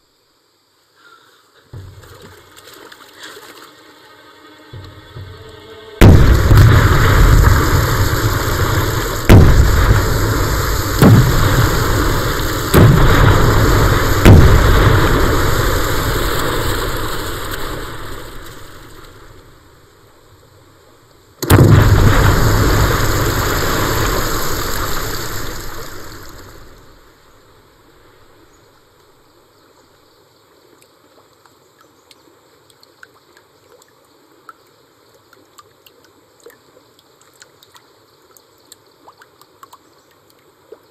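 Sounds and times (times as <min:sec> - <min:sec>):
faint water trickling: 0:00.8 - 0:21.4, 0:22.8 - 0:40.9
explosions with rumble: 0:06.0 - 0:19.4, 0:21.4 - 0:27.1.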